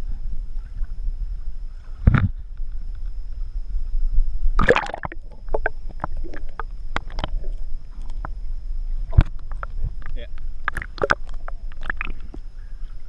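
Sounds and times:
low steady rumble: 0.0s - 13.0s
water splashing and sloshing: 4.6s - 13.0s.

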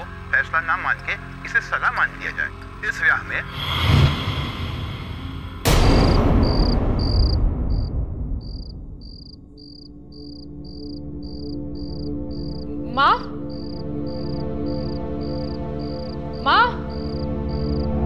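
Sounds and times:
low music drone: 0.0s - 7.6s, 9.4s - 18.0s
crickets chirping: 3.3s - 18.0s
rising swish: 3.5s - 5.8s
loud booming hit: 3.5s - 9.6s.

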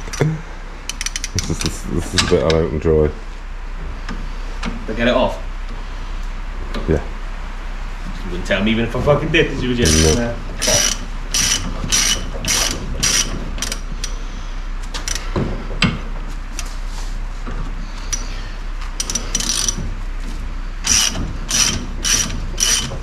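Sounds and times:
ratchet wrench clicking: 0.9s - 1.7s, 9.8s - 14.2s, 15.0s - 15.2s, 19.0s - 19.8s, 20.8s - 23.0s.

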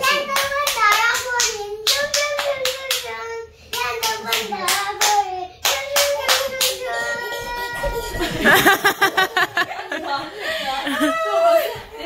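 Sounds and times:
hands clapping rhythmically: 0.0s - 7.1s.

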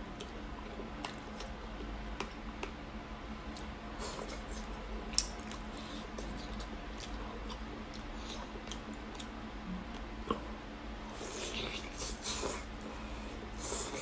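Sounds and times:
close chewing: 3.5s - 9.4s.

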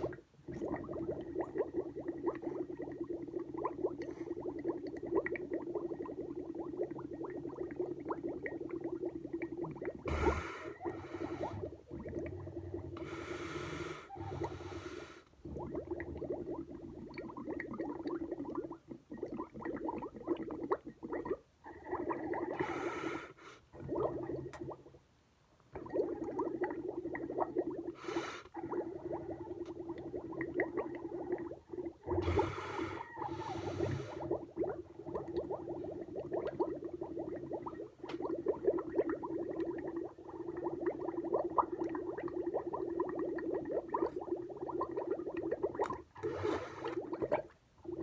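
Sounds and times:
milk bubbling through straw: 0.0s - 13.3s, 15.3s - 22.8s, 23.7s - 24.9s, 25.8s - 48.0s
sharp breath through nose: 32.2s - 34.2s.

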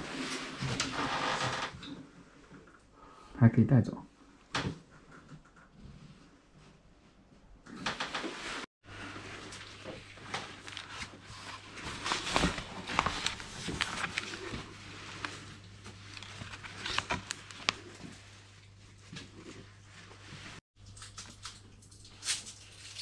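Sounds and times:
book pages rustling: 9.0s - 19.6s.

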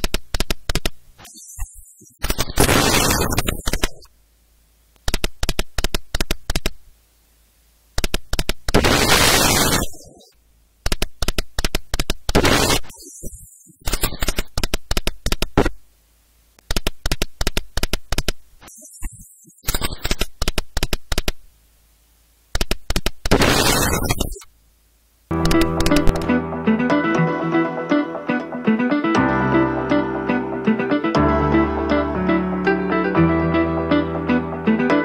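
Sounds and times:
slot machine reels clicking: 25.4s - 26.3s.

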